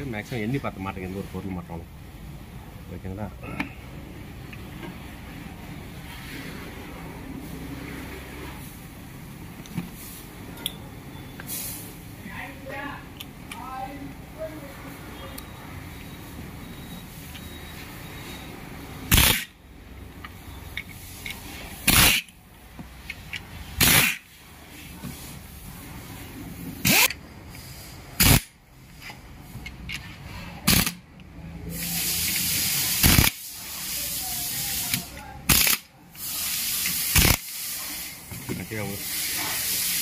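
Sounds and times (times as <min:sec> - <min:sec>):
pressurised spray hissing: 0:11.5 - 0:12.0, 0:31.7 - 0:40.0.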